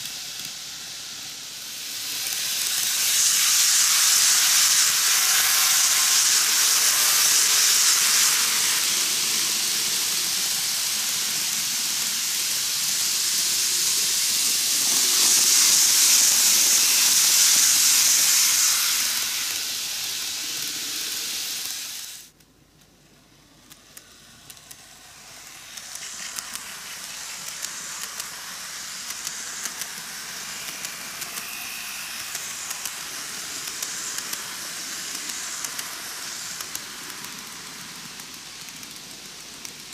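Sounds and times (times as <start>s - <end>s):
model train rumbling on track: 0.0s - 22.3s, 23.0s - 39.9s
rail joint clicks: 23.6s - 39.9s.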